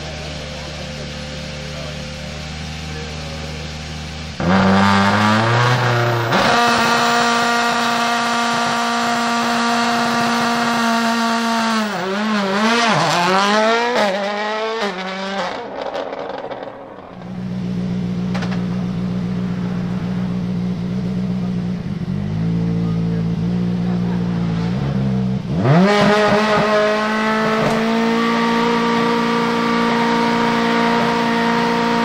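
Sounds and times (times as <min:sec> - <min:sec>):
car engine idling: 0:00.0 - 0:10.4, 0:15.6 - 0:25.8
rally car engine revving: 0:00.0 - 0:32.0.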